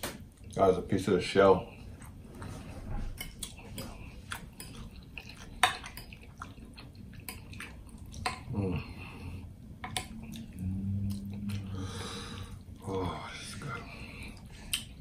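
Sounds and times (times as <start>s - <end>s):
wet chewing and smacking: 0.0s - 0.7s, 1.6s - 9.0s, 9.6s - 11.8s, 14.1s - 15.0s
person humming: 8.5s - 8.9s, 10.2s - 13.6s.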